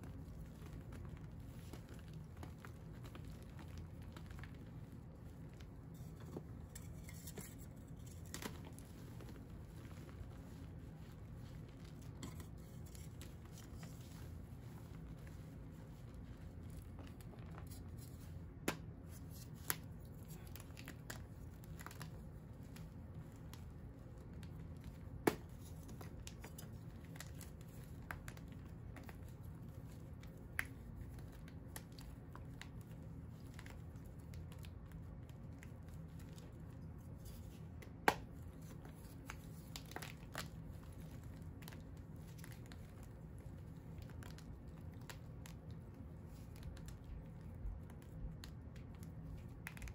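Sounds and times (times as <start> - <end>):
chalk crunching and snapping: 1.4 - 15.4.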